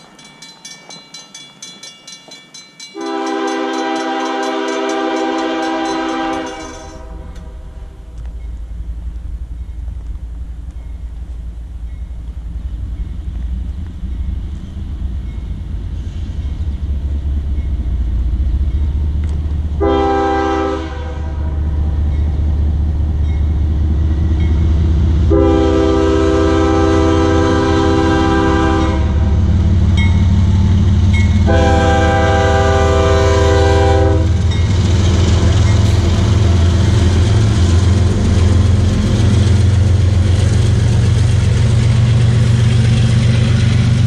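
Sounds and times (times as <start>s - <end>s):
locomotive engine rumble: 0.0s - 44.0s
train air horn blasts: 3.0s - 8.1s, 19.8s - 21.6s, 25.2s - 29.4s, 31.4s - 34.6s.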